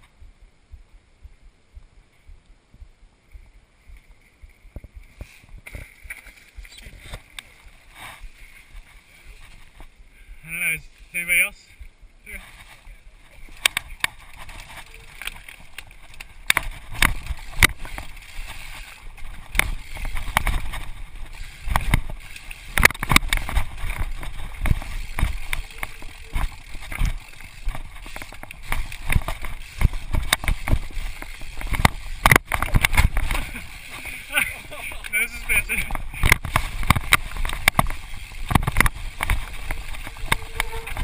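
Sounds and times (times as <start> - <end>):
steady rushing noise: 0.0 - 41.0
bike tyres knocking on rock: 14.9 - 33.7, 35.8 - 41.0.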